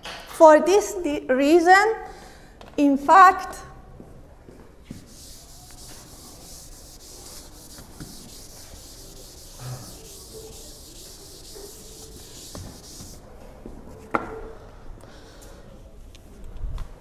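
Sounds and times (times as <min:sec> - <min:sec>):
eraser rubbing on chalkboard: 0:04.9 - 0:13.2.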